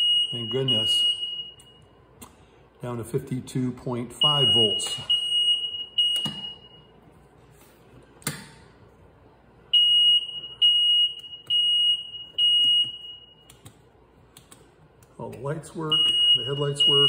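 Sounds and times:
electronic beeper long beeps: 0:16.0 - 0:17.0.

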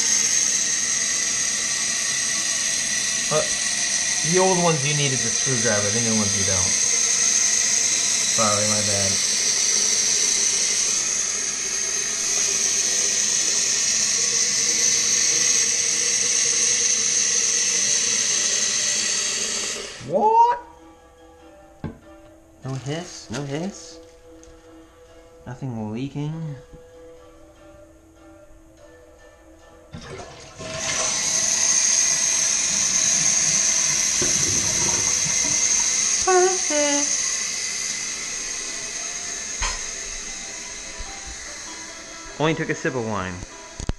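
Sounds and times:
toilet fill valve hissing: 0:00.0 - 0:20.5, 0:30.0 - 0:43.9.

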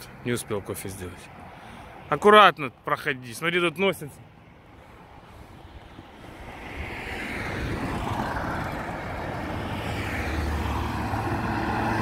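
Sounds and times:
quad bike engine racing: 0:07.6 - 0:12.0.

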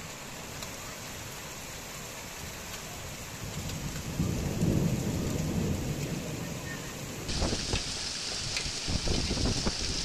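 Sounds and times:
heavy rain pouring: 0:00.0 - 0:10.0
low roll of thunder: 0:03.3 - 0:10.0.

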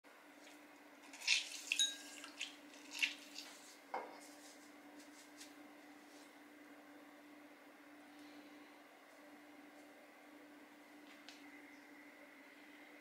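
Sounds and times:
faint steady hum: 0:00.1 - 0:13.0
juice dripping: 0:00.4 - 0:03.6.

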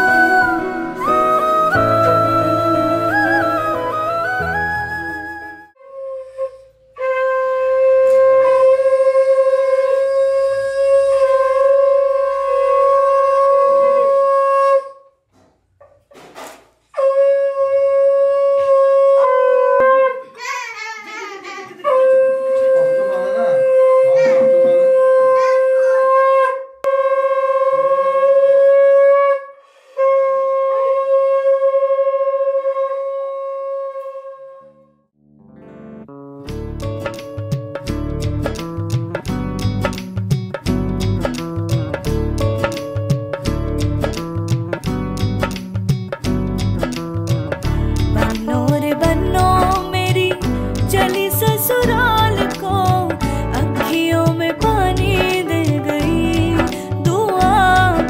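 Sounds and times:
conch shell blown: 0:00.0 - 0:15.1, 0:17.0 - 0:20.3, 0:21.8 - 0:35.0.

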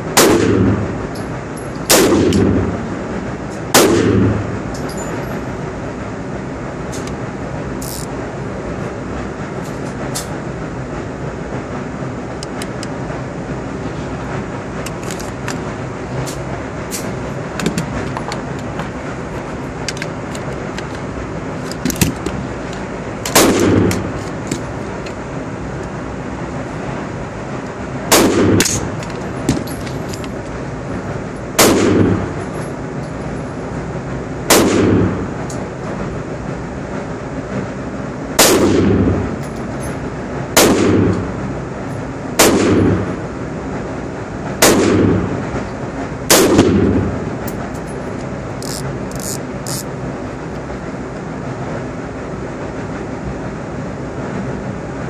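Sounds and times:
rifle shots echoing indoors: 0:00.2 - 0:00.8, 0:01.9 - 0:02.6, 0:03.7 - 0:04.4, 0:23.3 - 0:24.0, 0:28.1 - 0:28.9, 0:31.6 - 0:32.2, 0:34.5 - 0:35.2, 0:38.4 - 0:39.1, 0:40.6 - 0:41.2, 0:42.4 - 0:43.1, 0:44.6 - 0:45.2, 0:46.3 - 0:46.9.

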